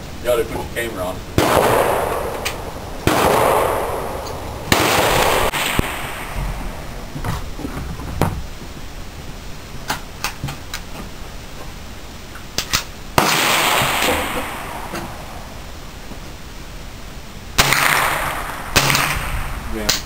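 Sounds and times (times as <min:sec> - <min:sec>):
loud echoing gunshots: 0:01.3 - 0:07.1, 0:13.2 - 0:15.6, 0:17.6 - 0:19.9.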